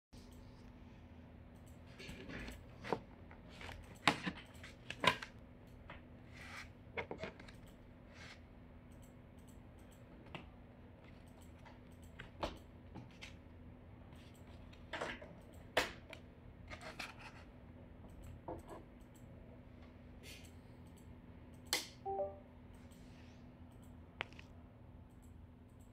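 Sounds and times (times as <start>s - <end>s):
faint steady hum: 0.2s - 25.9s.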